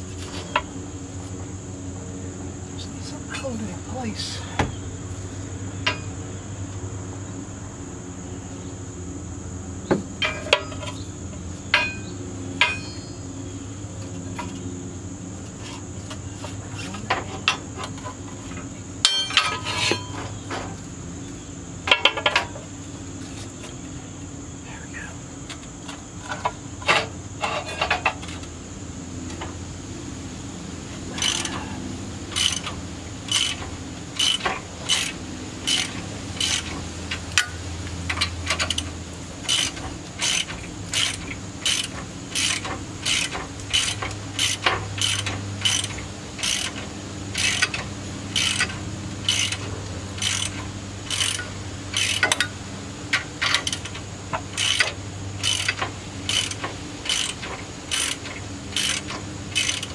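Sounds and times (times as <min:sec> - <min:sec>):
ratchet wrench clicking: 0:31.2 - 0:31.6, 0:32.3 - 0:59.9.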